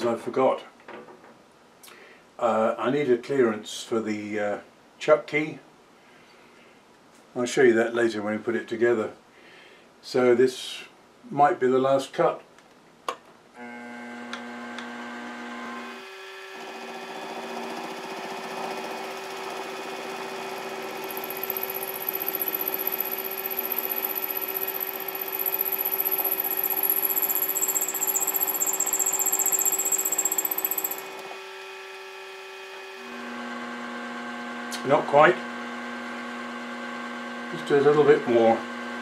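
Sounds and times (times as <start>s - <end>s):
milling machine spindle running: 16.6s - 31.4s
end mill cutting metal: 17.8s - 31.5s.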